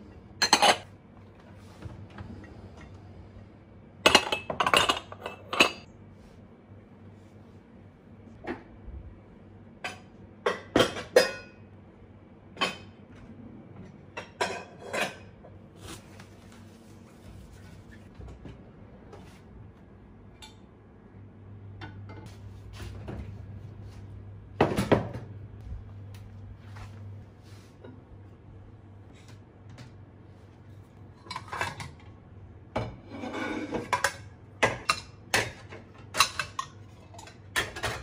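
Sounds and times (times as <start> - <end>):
dishes and utensils clinking: 0.4 - 0.9, 4.0 - 5.9, 9.8 - 11.6, 14.1 - 15.4, 31.2 - 32.1, 32.8 - 38.0.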